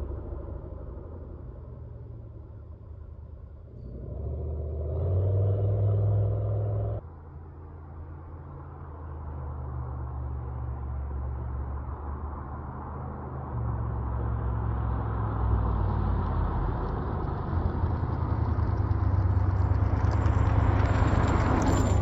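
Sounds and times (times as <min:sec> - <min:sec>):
car engine accelerating: 0:00.0 - 0:07.0.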